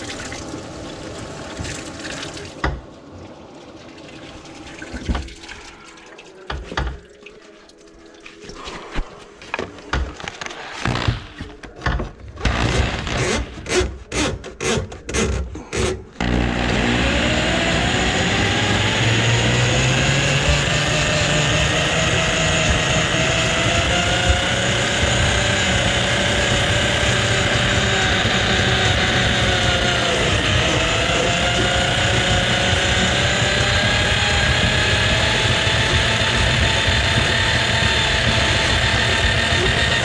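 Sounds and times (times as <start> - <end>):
drain auger motor running: 10.8 - 11.3, 12.4 - 13.8, 16.2 - 40.0.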